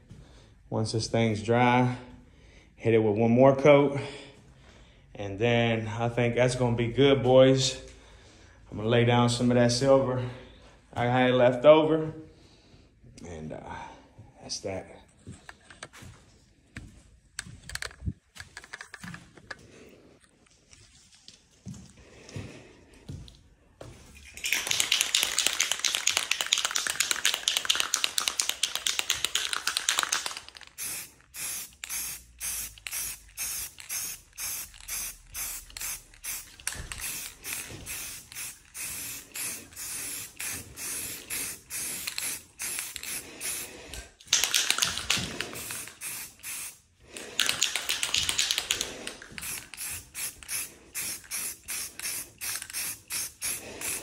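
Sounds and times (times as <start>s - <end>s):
spray paint can hissing: 24.4s - 54.0s.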